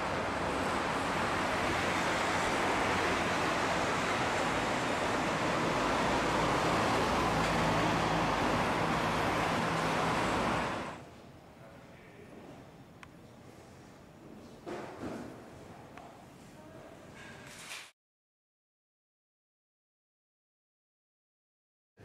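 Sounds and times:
city street traffic: 0.0 - 11.0.

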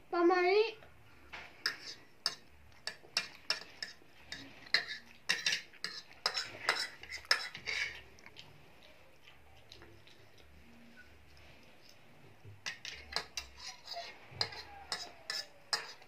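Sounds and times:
fork clinking and scraping on plate: 1.6 - 8.1, 12.6 - 16.0.

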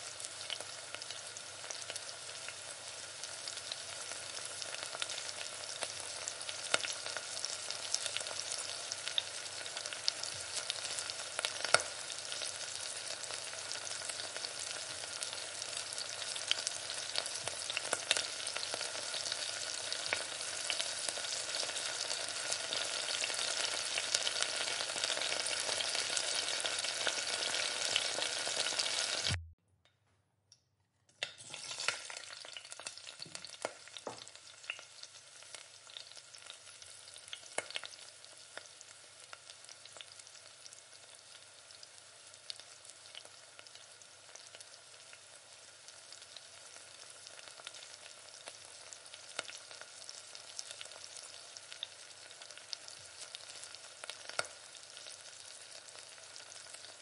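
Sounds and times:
vegetables sizzling in a frying pan: 0.0 - 29.4, 31.4 - 57.0.

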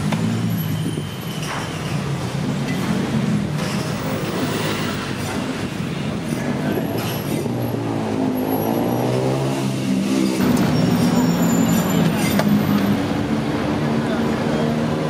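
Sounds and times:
vehicle engines running: 0.0 - 15.0.

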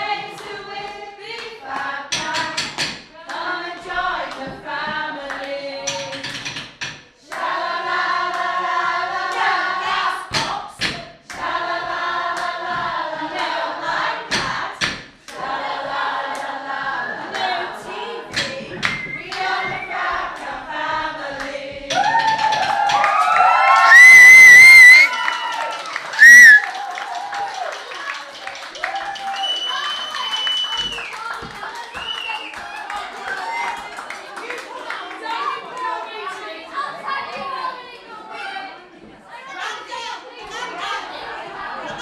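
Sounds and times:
women singing unaccompanied: 0.0 - 6.5, 7.1 - 23.1
sharp claps or knocks: 21.4 - 27.1.

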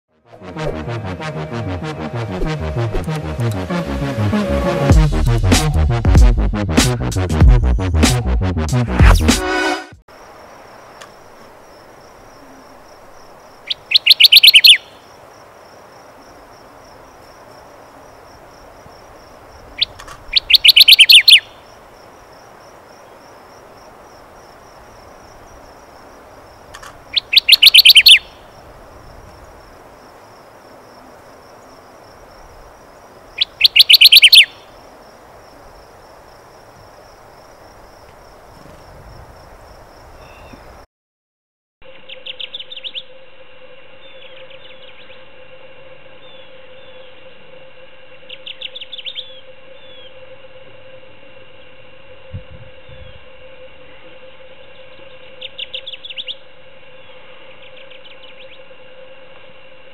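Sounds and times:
warbler singing: 13.5 - 15.2, 19.6 - 21.8, 27.1 - 28.7, 33.3 - 34.8, 40.2 - 40.8, 48.3 - 50.1, 54.7 - 56.4.

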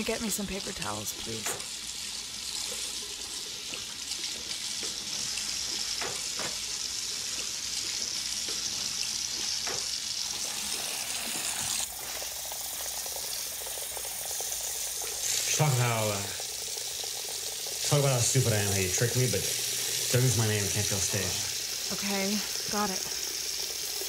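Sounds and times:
tap water splashing over hands: 9.3 - 10.0.

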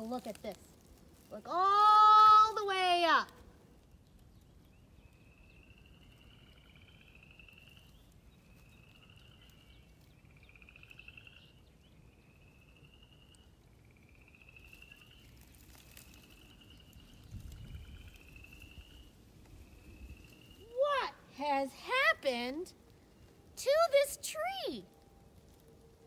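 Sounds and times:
frogs trilling in chorus: 5.1 - 21.1.

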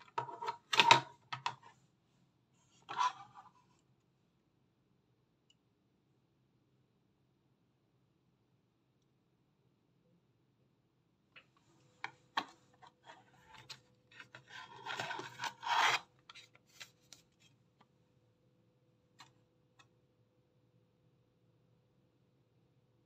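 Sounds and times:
hard plastic rubbing and scraping: 0.0 - 1.8, 12.1 - 17.5.

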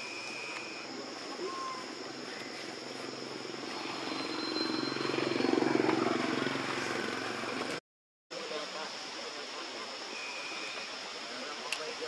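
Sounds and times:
engine drone: 3.0 - 7.8
high-pitched hiss: 8.4 - 12.0.

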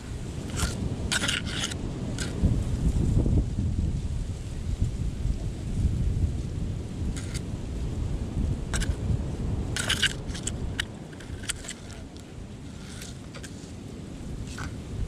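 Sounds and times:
wind rumbling on microphone: 0.0 - 15.0
sharp clicks and scratches: 0.5 - 2.4, 7.2 - 7.4, 8.7 - 9.0, 9.8 - 13.7, 14.5 - 14.8.

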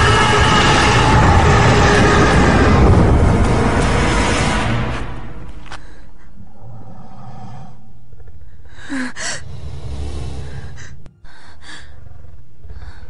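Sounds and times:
low steady rumble: 0.0 - 13.0
woman gasping and breathing shakily: 8.5 - 9.5, 10.4 - 13.0.

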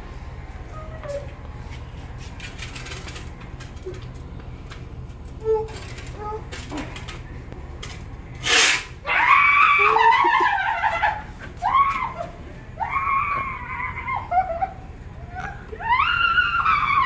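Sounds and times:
woman screaming: 9.0 - 14.8, 15.8 - 17.0.

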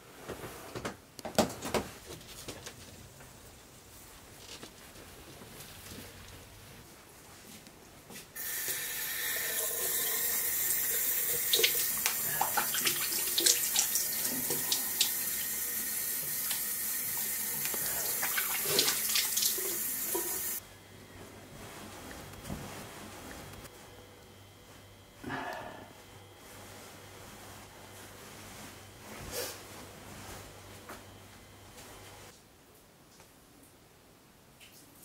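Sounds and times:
water tap running into sink: 8.4 - 20.6
water splashing: 17.6 - 20.6.

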